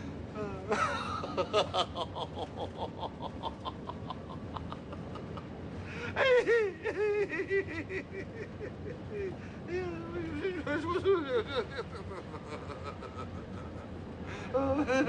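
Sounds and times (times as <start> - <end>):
people laughing: 0.4 - 15.0
high-pitched giggles: 6.1 - 9.9.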